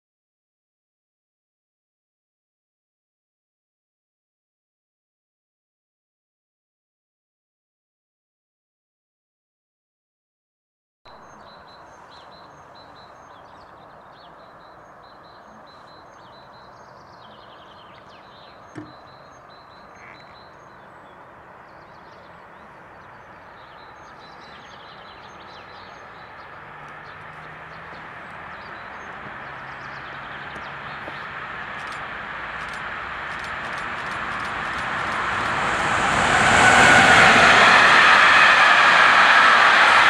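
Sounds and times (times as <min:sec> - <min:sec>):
steady outdoor hiss: 0:11.1 - 0:36.5
small birds chirping: 0:11.2 - 0:35.2
low hum: 0:27.3 - 0:40.0
electric freight train rolling: 0:31.4 - 0:40.0.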